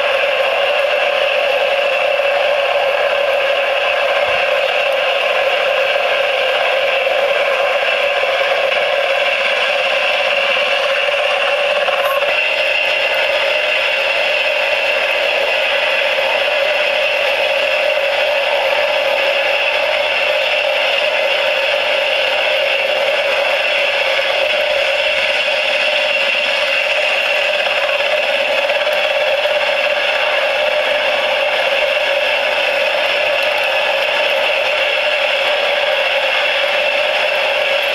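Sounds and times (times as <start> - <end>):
small electric motor whirring with rattle: 0.0 - 37.9.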